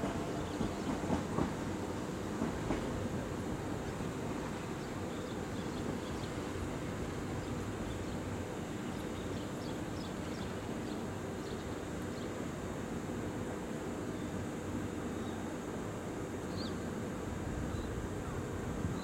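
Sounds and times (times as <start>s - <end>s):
electric train humming: 0.0s - 18.9s.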